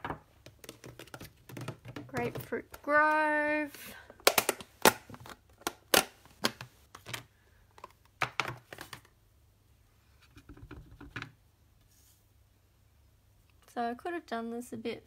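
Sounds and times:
plastic case clicking and knocking: 0:00.0 - 0:02.8.

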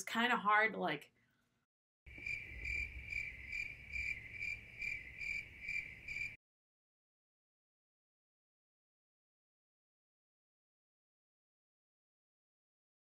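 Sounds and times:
crickets chirping: 0:02.1 - 0:06.4.

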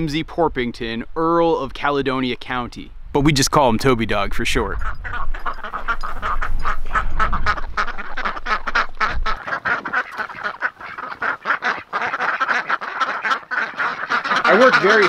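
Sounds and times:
ducks quacking: 0:04.8 - 0:15.0.

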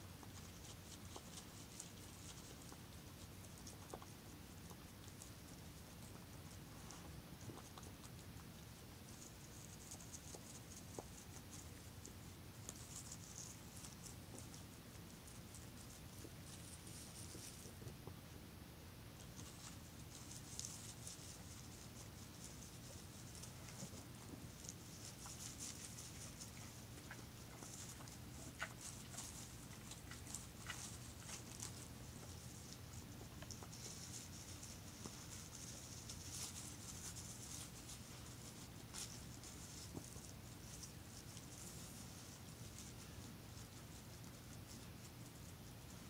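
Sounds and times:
steady low hum: 0:00.0 - 0:46.0
deer crunching while feeding: 0:19.2 - 0:46.0.

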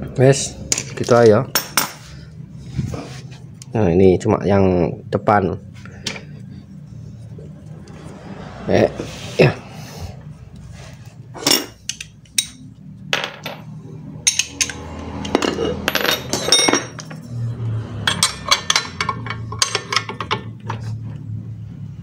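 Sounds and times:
metal parts and tools clinking: 0:11.4 - 0:17.3, 0:17.9 - 0:20.8.

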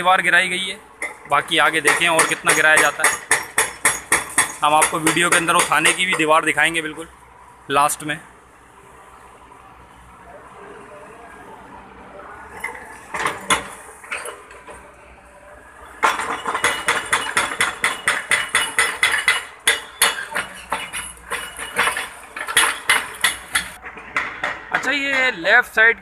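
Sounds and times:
hydraulic breaker hammering concrete: 0:01.0 - 0:06.4, 0:16.0 - 0:25.4.

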